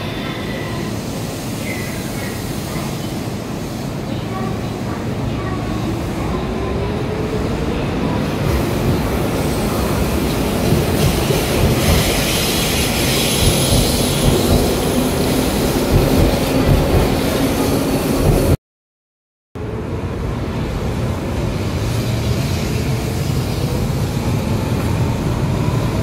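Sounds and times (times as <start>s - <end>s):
train hiss: 0.0s - 6.3s, 8.4s - 16.4s
train wheel and rail noise: 0.0s - 18.6s, 19.6s - 26.0s.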